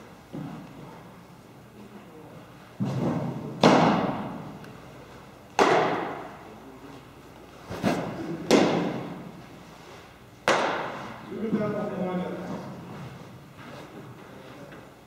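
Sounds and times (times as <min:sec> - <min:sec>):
baseballs smacking into gloves: 0:02.8 - 0:04.4, 0:05.5 - 0:06.3, 0:07.9 - 0:09.2, 0:10.4 - 0:11.0.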